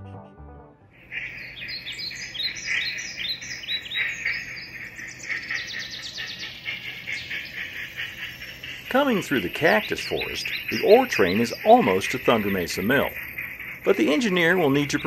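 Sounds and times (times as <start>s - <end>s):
small birds chirping: 1.0s - 15.0s.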